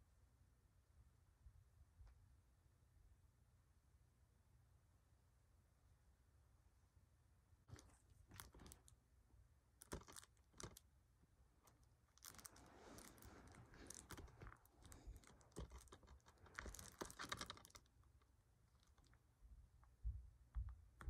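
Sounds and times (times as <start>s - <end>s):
plastic wrap crinkling: 7.7s - 8.9s, 9.8s - 10.8s, 11.6s - 18.0s, 18.7s - 19.2s.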